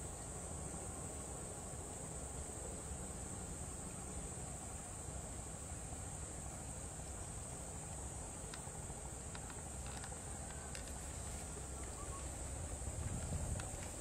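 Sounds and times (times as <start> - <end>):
crickets chirping: 0.0 - 14.0
faint ticks: 7.0 - 14.0.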